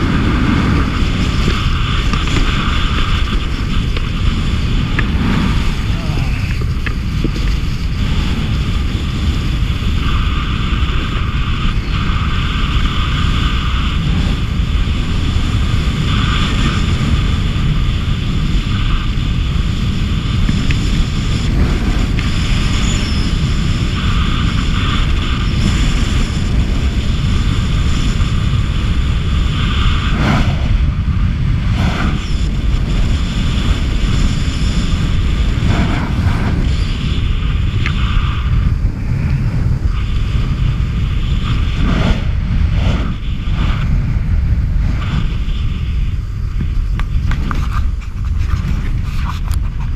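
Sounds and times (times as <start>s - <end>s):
skis sliding on snow: 0.0s - 17.4s, 31.6s - 49.9s
wind buffeting microphone: 0.0s - 49.9s.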